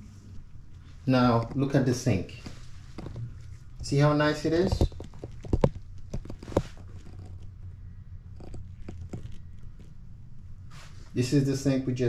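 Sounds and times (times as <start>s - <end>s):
low steady hum: 0.0s - 12.0s
sharp clicks and knocks: 2.4s - 7.5s, 8.3s - 10.0s.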